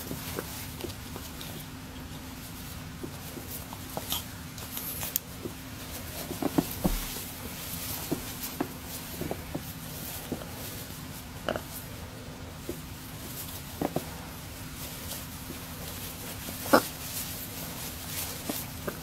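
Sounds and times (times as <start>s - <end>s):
beak clicks and feather rustles: 12.5s - 19.0s.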